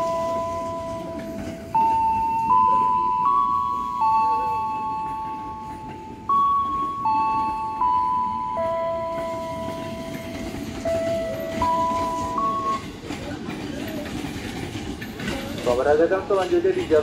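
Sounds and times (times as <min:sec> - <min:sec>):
public-address chime melody: 0:00.0 - 0:12.9.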